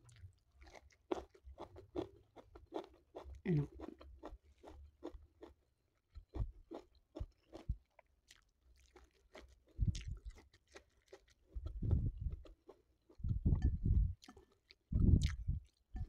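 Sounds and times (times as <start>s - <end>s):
close chewing with mouth clicks: 0.0s - 16.0s.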